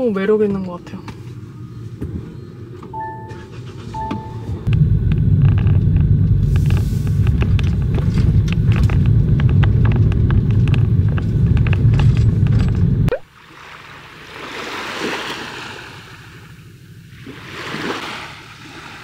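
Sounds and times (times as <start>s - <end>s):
car cabin road rumble: 0.0s - 13.1s
short electronic beeps: 1.7s - 3.4s
ticks and rattles: 4.7s - 13.1s.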